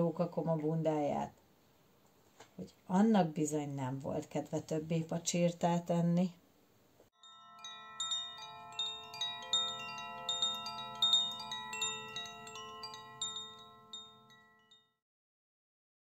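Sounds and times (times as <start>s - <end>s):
wind chimes ringing: 7.2s - 15.0s.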